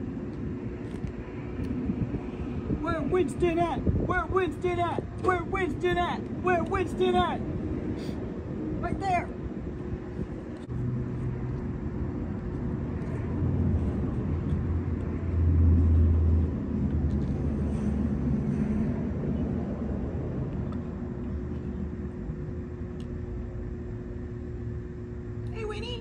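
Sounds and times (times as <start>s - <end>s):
motor vehicle engine rumble: 9.4s - 26.0s.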